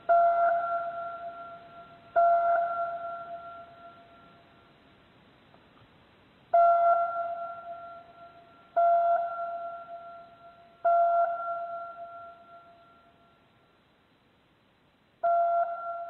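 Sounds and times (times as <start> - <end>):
bell-like note ringing: 6.6 - 13.4, 15.2 - 16.0.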